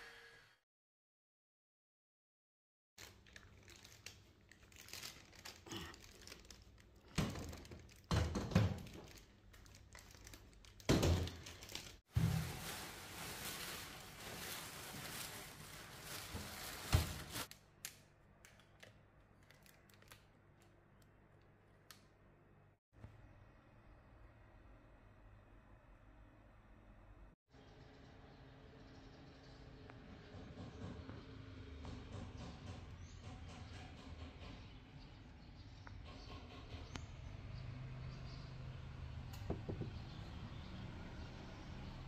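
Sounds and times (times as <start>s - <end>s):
plastic bags crinkling: 3.0s - 17.6s, 18.5s - 20.8s.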